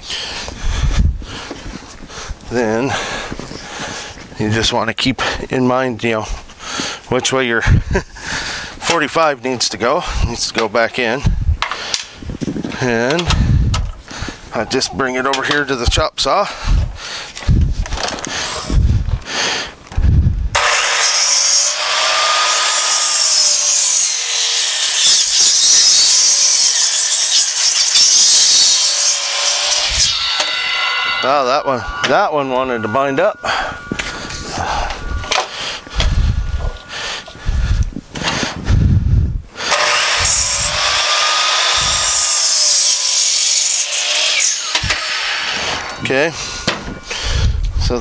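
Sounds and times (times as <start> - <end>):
chop saw cutting wood: 20.6 - 36.2, 38.2 - 38.6, 39.6 - 47.5
low thumps: 30.0 - 39.5.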